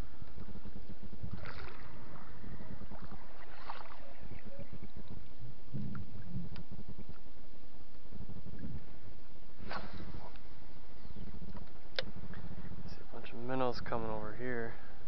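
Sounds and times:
water splashing around boat: 0.0 - 7.4
wind on microphone: 0.0 - 13.9.

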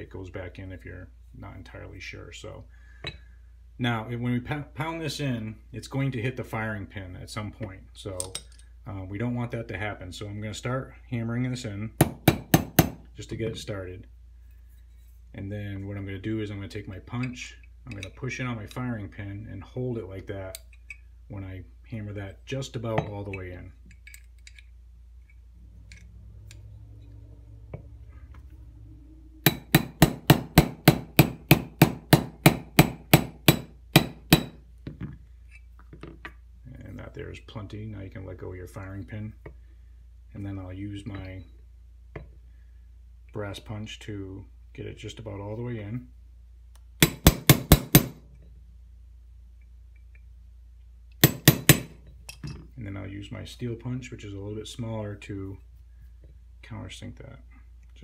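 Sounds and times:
hammer tapping a pin: 12.0 - 13.0, 29.4 - 35.2, 47.0 - 48.2, 51.2 - 52.0.

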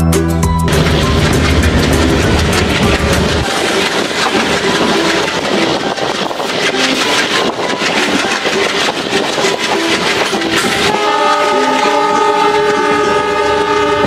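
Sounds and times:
train wheel squeals: 0.7 - 14.0
train wheels clattering on rails: 0.7 - 14.0
locomotive horn blast: 10.5 - 14.0.

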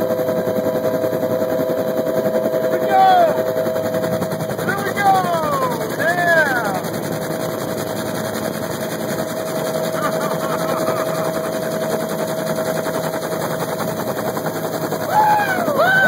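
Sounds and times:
helicopter engine whine: 0.0 - 16.0
helicopter rotor blade slap: 2.2 - 16.0
voices: 2.7 - 3.5, 4.6 - 7.0, 9.8 - 11.5, 15.1 - 16.0.

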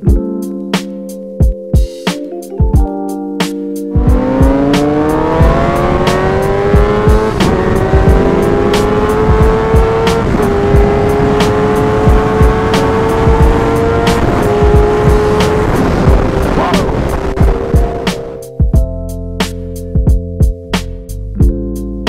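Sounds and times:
motorcycle engine accelerating hard: 4.0 - 18.4.

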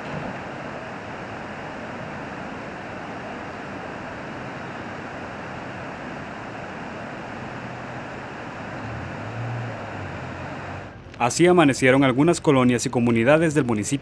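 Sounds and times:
steady outdoor rushing noise: 0.0 - 14.0.

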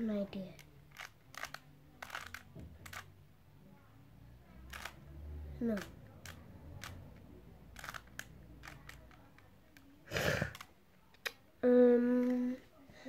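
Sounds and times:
plastic puzzle cube clicking: 0.5 - 3.1, 4.7 - 5.0, 5.7 - 7.1, 7.7 - 10.7.

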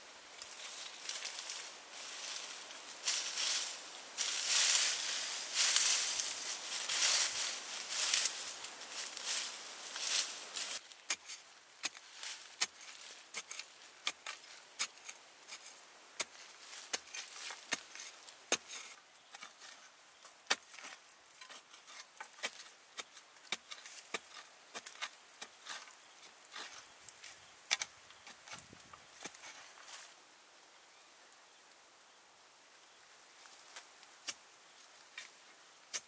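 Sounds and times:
loose dirt crumbling: 0.3 - 30.2
metal blade digging into soil: 3.0 - 19.9.

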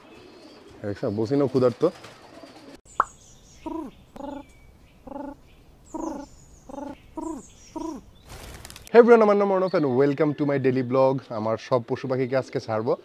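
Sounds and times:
pigeons cooing: 0.0 - 0.8, 1.5 - 2.8, 3.6 - 8.2.

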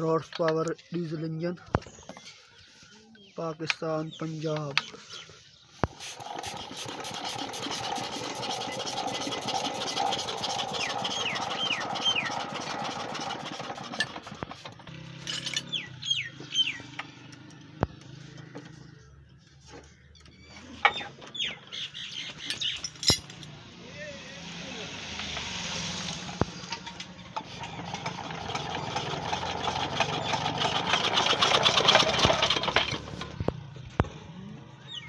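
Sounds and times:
diesel engine knocking: 26.4 - 33.9.

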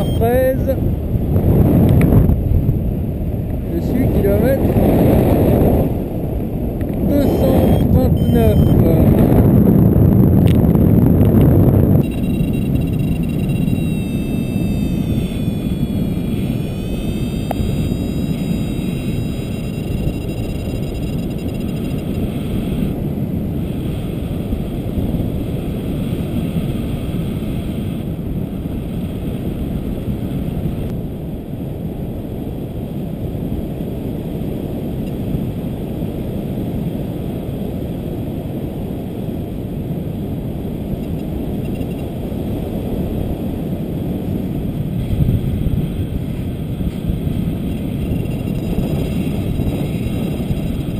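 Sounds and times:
faint thin high tone: 0.0 - 0.7, 7.1 - 9.0, 12.0 - 22.1
wind rushing over microphone: 0.0 - 50.9.

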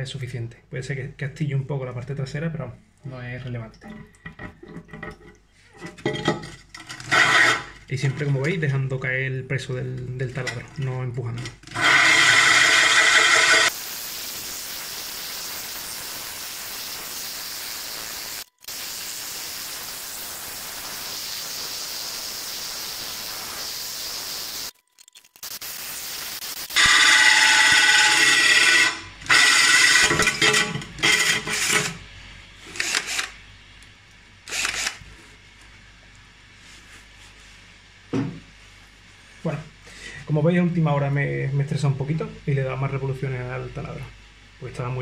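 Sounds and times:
drill grinding glass: 7.0 - 7.8, 11.6 - 32.0, 32.6 - 33.4, 34.5 - 35.0
drill motor whine: 11.8 - 13.7, 26.5 - 32.0, 32.7 - 33.4, 34.5 - 35.0.

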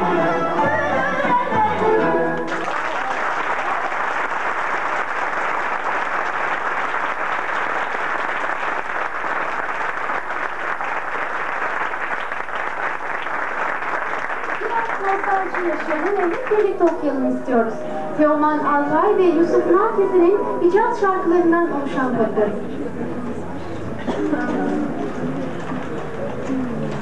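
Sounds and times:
audience applauding: 2.4 - 17.0.

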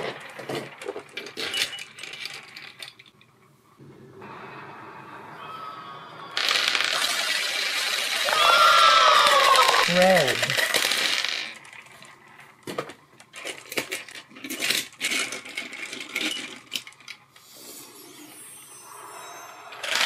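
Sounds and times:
small balls clattering on table: 0.0 - 3.3, 6.4 - 17.3
balls clicking together: 6.4 - 17.3.

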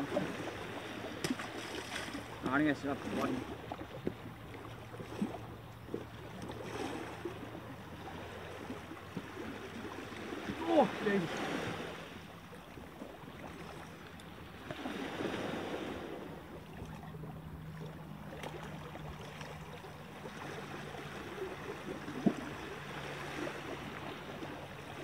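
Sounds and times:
small waves washing on rocks: 0.0 - 12.4
wind: 0.0 - 25.0.

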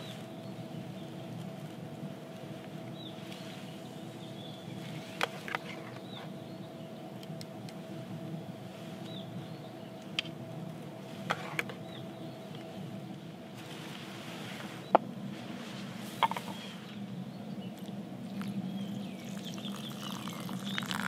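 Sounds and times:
bird chirping: 2.9 - 7.2, 16.2 - 21.0.

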